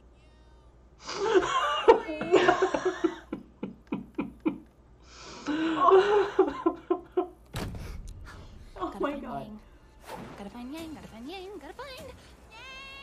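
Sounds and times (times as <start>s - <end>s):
man and woman laughing: 1.1s - 4.7s, 5.5s - 7.4s.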